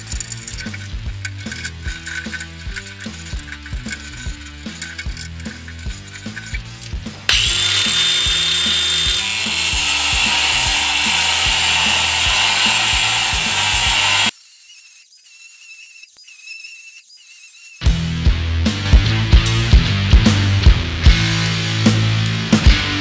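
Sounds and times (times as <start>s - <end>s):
angle grinder cutting steel: 0.0s - 17.9s
rock music: 0.1s - 14.3s, 17.9s - 23.0s.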